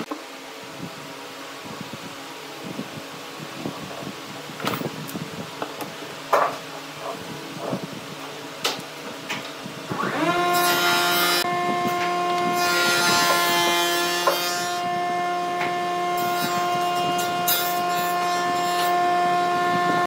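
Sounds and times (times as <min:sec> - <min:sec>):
steady hum: 0:00.0 - 0:20.0
power tool motor whining: 0:09.9 - 0:20.0.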